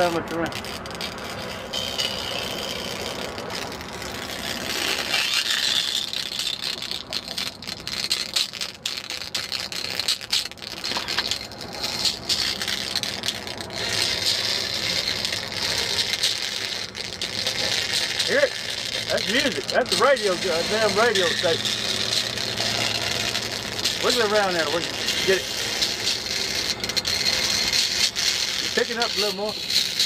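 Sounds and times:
crackling electric arc: 0:00.0 - 0:30.0.

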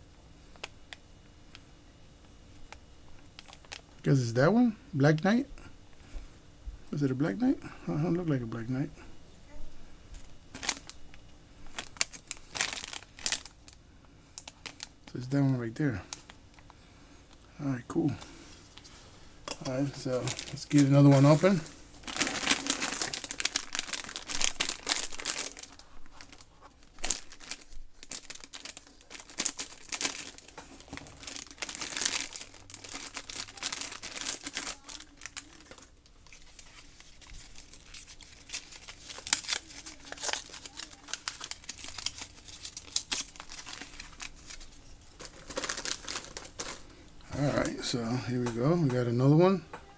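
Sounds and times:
foil wrapper crinkling and tearing: 0:03.4 - 0:04.0, 0:10.2 - 0:13.8, 0:14.4 - 0:16.8, 0:19.6 - 0:47.8.

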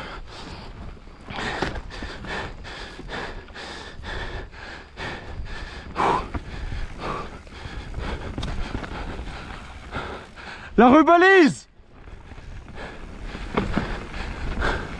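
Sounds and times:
person panting: 0:00.0 - 0:10.8, 0:12.3 - 0:14.9
low rumble of riding: 0:00.0 - 0:14.9.

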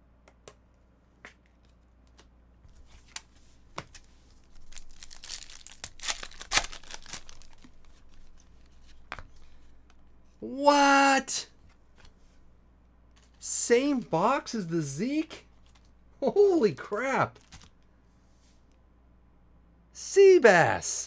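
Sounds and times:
cards rustling: 0:01.5 - 0:10.2, 0:13.1 - 0:16.0, 0:16.7 - 0:17.9
foil wrapper crinkling and tearing: 0:04.4 - 0:08.4.

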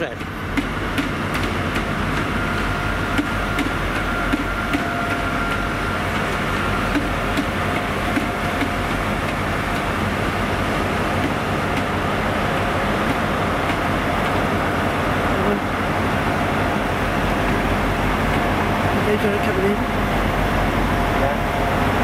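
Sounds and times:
train wheels clicking on rail joints: 0:00.0 - 0:10.1, 0:11.1 - 0:12.0, 0:12.6 - 0:14.5
train engine rumble: 0:00.0 - 0:22.0.

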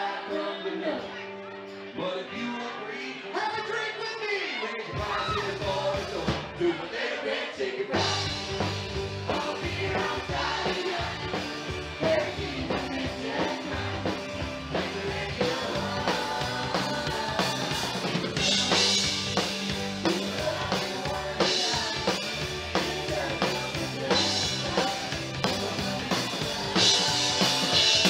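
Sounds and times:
live country-rock band: 0:00.0 - 0:06.8, 0:07.9 - 0:28.0.

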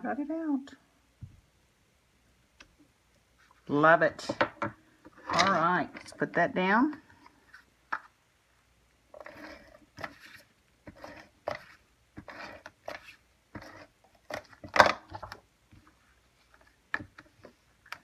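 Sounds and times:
paper scraping and rustling: 0:09.2 - 0:14.6.

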